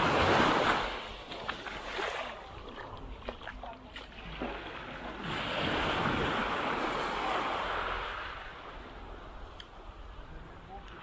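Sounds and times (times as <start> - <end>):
wave breaking on beach: 0.0 - 2.4, 4.2 - 8.7.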